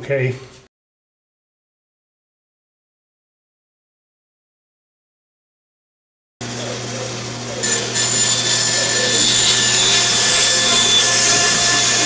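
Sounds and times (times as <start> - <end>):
bandsaw motor hum: 6.4 - 12.0
bandsaw cutting wood: 7.5 - 12.0.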